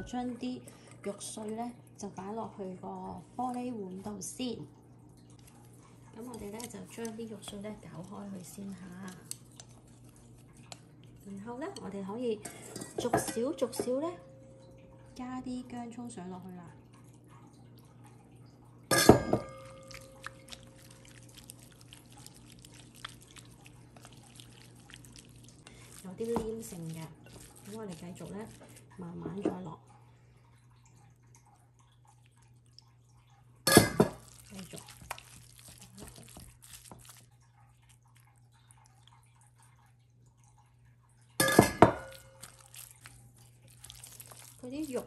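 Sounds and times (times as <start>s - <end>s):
wet squelching of stirred meat: 0.1s - 14.1s, 19.4s - 45.0s
glass clink: 18.9s - 19.8s, 41.4s - 42.4s
water poured onto meat: 19.6s - 28.9s, 34.0s - 39.2s, 41.4s - 45.0s.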